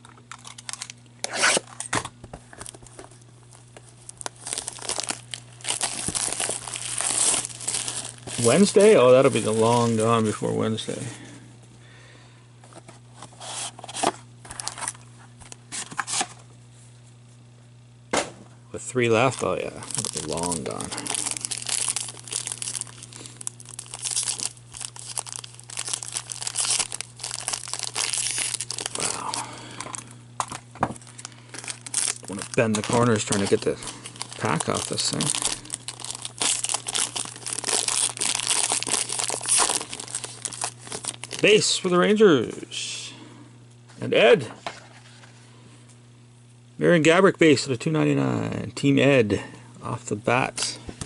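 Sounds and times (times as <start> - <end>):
faint steady hum: 0.0 - 51.0
plastic shrink-wrap tearing: 3.6 - 10.4, 19.2 - 41.7.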